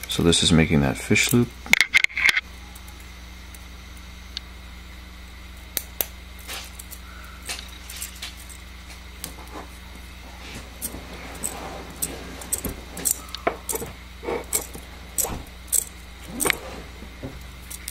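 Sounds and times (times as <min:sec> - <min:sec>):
steady low hum: 0:00.0 - 0:17.9
metal tool and wire clicking: 0:05.8 - 0:08.6, 0:10.8 - 0:16.7, 0:17.6 - 0:17.9.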